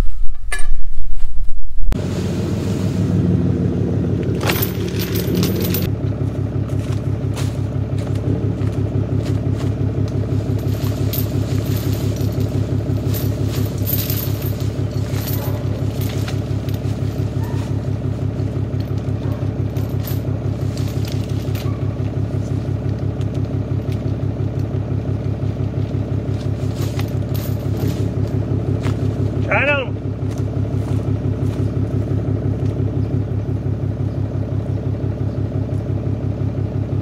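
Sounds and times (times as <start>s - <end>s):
engine idling: 2.0s - 37.0s
chain rattling and dragging: 4.2s - 5.9s, 9.6s - 24.7s, 25.8s - 29.5s.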